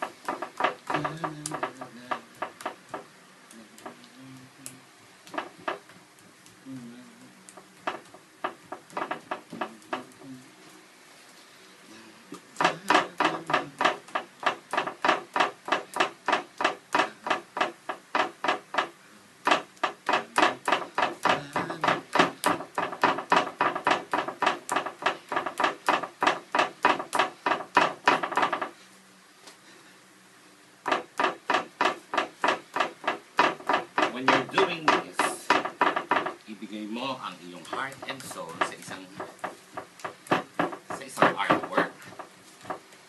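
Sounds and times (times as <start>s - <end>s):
tool tapping on canvas: 0.0s - 3.1s, 5.3s - 5.9s, 7.5s - 10.3s, 12.3s - 28.8s, 30.8s - 36.5s, 37.4s - 42.9s.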